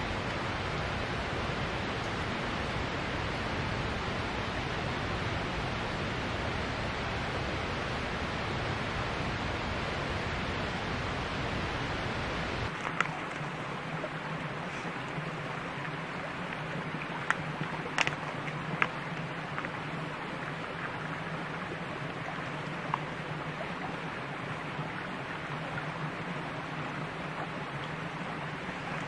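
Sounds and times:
shallow creek flowing: 0:00.0 - 0:29.0.

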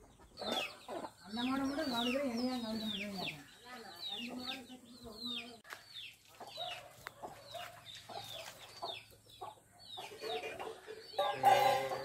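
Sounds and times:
chickens clucking: 0:00.0 - 0:12.0
drawn-out chicken call: 0:07.2 - 0:12.0.

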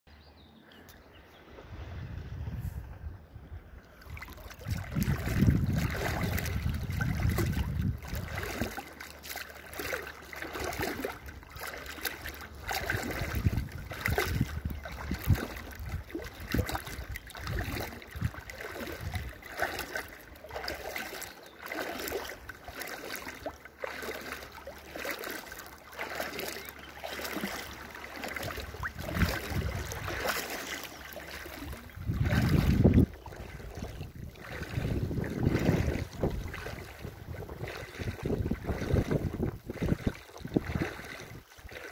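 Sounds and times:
wind buffeting microphone: 0:01.5 - 0:08.8, 0:10.6 - 0:21.2, 0:28.2 - 0:41.9
shallow water splashing: 0:03.8 - 0:41.9.

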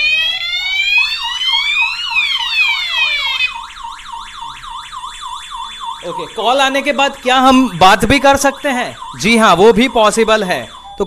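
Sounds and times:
fast warbling alarm tone: 0:00.0 - 0:11.0
rising and falling alarm siren: 0:00.0 - 0:11.0
steady high beep: 0:06.0 - 0:11.0.

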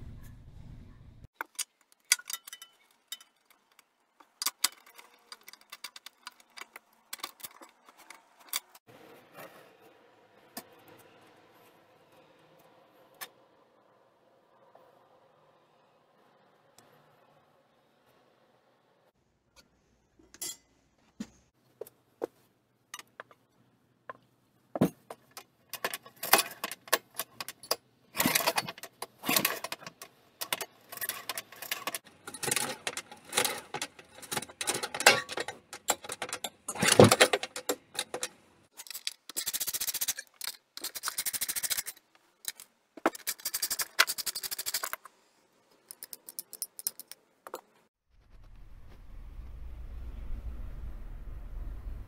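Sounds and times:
metallic clicking and rattling: 0:01.4 - 0:08.8, 0:25.1 - 0:45.1, 0:45.8 - 0:47.7.

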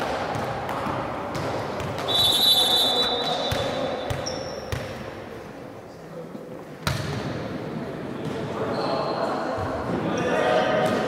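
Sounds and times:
ball thumping: 0:00.3 - 0:02.4
referee's whistle blast: 0:02.1 - 0:03.7
murmur of voices: 0:05.1 - 0:11.0.

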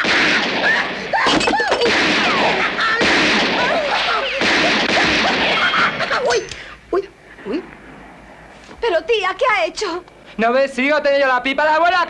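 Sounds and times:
people shouting and yelling: 0:00.0 - 0:06.6.

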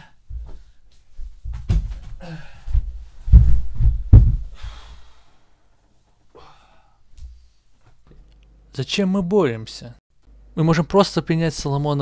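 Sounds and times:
bodies thumping against floor: 0:00.3 - 0:04.9.

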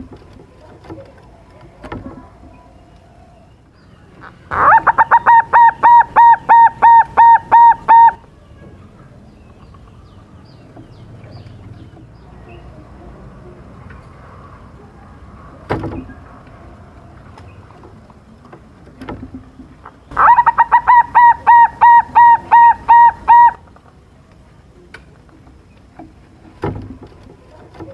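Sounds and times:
dove cooing: 0:04.5 - 0:08.2, 0:20.1 - 0:23.6.

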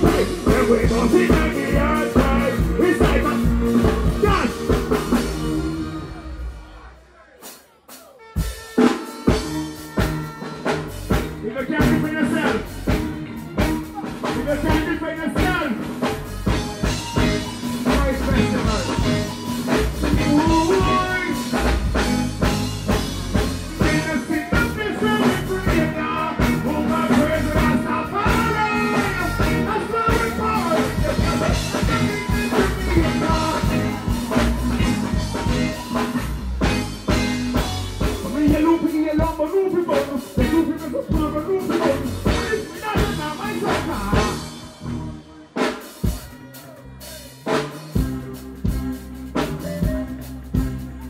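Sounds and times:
person singing: 0:00.0 - 0:06.9, 0:20.0 - 0:21.8, 0:23.4 - 0:36.3
live band music: 0:00.0 - 0:51.0.

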